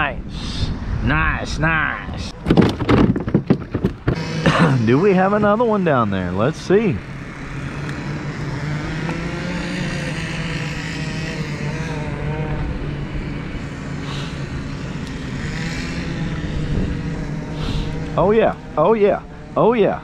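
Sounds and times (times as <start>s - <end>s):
electric motor humming: 3.6s - 20.0s
faint wavering whine: 4.1s - 20.0s.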